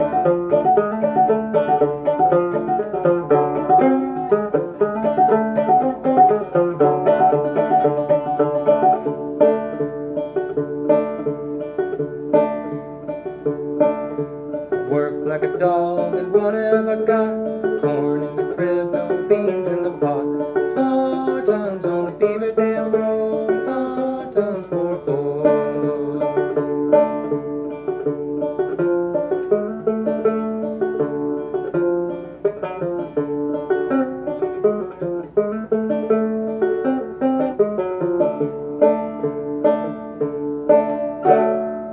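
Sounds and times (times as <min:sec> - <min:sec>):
banjo plucked clawhammer style: 0:00.0 - 0:41.9.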